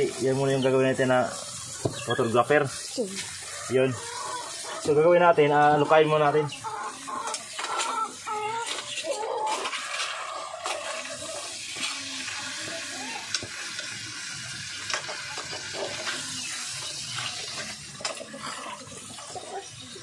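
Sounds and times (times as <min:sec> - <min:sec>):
liquid simmering in pot: 0:09.4 - 0:20.0.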